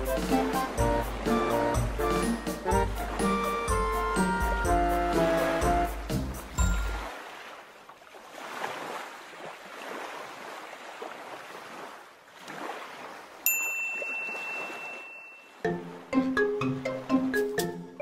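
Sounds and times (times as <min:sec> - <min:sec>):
music: 0:00.0 - 0:07.1, 0:15.6 - 0:18.0
ocean waves washing: 0:00.0 - 0:17.8
thin high steady tone: 0:13.5 - 0:15.6.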